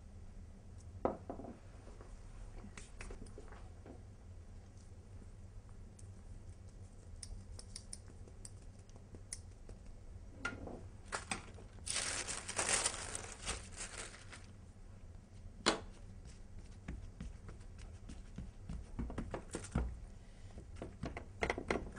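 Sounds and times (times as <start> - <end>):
baking paper rustling: 11.0 - 14.6.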